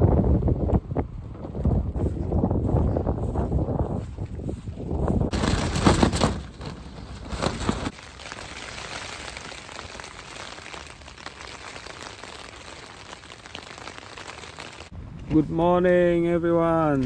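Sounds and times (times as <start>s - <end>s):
gusty wind on microphone: 0.0s - 7.9s
rustling: 5.3s - 14.9s
rain pattering: 7.4s - 14.9s.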